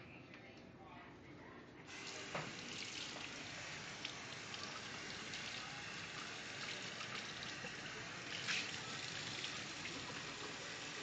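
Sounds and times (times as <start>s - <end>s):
faucet water running into sink: 1.9s - 11.0s.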